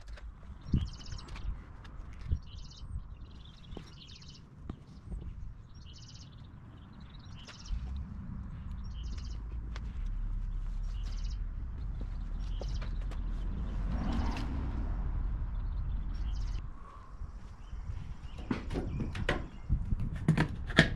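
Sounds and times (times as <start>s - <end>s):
songbird singing trills: 0.5s - 1.5s, 2.3s - 8.0s, 8.6s - 9.5s, 10.8s - 14.4s, 15.5s - 17.0s
low rumble: 7.0s - 19.0s.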